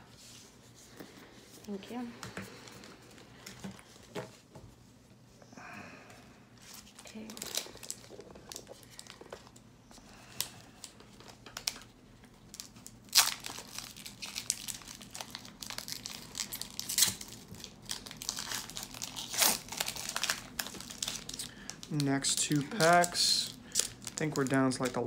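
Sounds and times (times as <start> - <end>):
foil wrappers crinkling and tearing: 6.6 - 9.6, 10.2 - 25.0.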